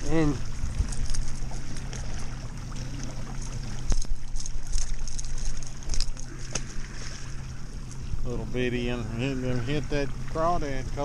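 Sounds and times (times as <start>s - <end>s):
wind on microphone: 0.0s - 1.8s
boat motor humming: 0.0s - 11.0s
water washing: 0.0s - 11.0s.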